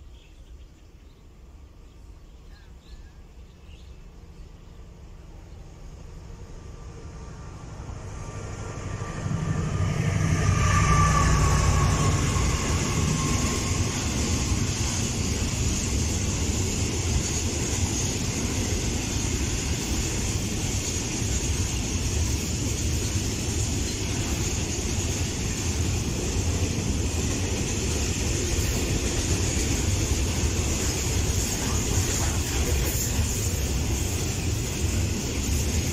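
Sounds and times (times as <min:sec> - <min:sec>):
freight train rumbling on rails: 0:00.0 - 0:35.9
falling whine: 0:05.6 - 0:19.4.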